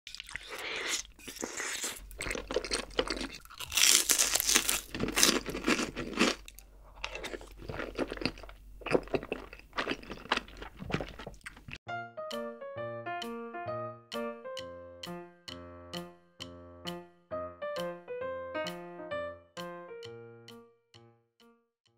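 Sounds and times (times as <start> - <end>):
noodles slurped off a spoon: 0.1 - 2.3
wet chewing: 0.1 - 11.8
light piano tune: 11.9 - 21.6.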